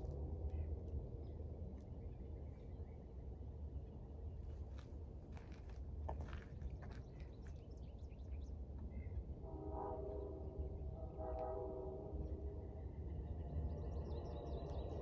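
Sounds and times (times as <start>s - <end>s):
distant locomotive air horn: 9.5s - 12.2s.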